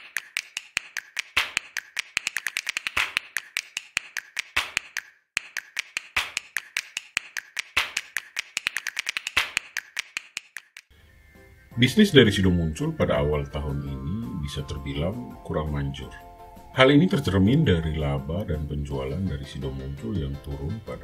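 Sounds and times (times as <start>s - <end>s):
rapid sharp clicks: 0.0s - 10.9s.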